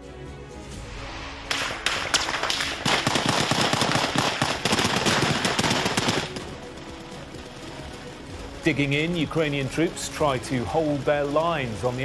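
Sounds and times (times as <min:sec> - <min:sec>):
rapid small-arms gunfire: 0:01.5 - 0:07.4.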